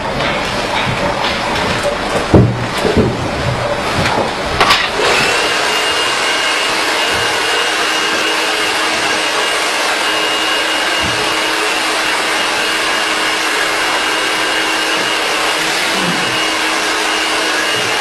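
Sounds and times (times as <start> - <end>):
knocks: 0.2 - 4.9
hair dryer blowing: 4.9 - 18.0.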